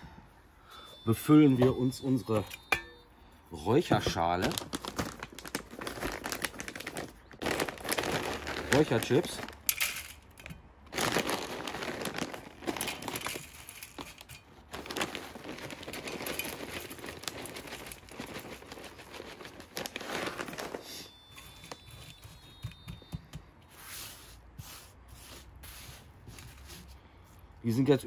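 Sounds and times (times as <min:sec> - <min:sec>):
plastic bag crinkling: 0:03.7 - 0:22.6
wood chips shaken into metal box: 0:06.1 - 0:10.1, 0:10.9 - 0:21.1.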